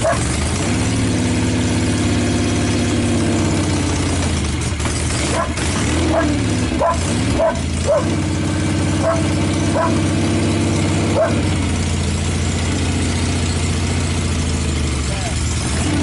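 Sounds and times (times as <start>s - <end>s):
dog barking: 0.0s - 0.3s, 5.3s - 8.2s, 9.0s - 10.1s, 11.1s - 11.5s
motorcycle engine idling: 0.0s - 16.0s.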